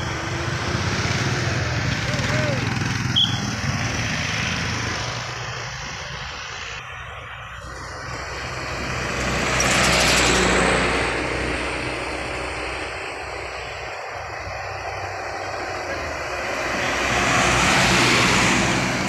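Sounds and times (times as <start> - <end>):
low traffic hum: 0.0 - 19.0
vehicle driving past: 7.9 - 19.0.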